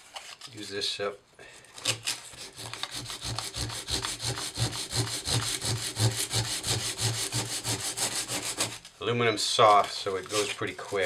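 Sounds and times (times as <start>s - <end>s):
sandpaper rubbing on metal: 2.4s - 8.8s.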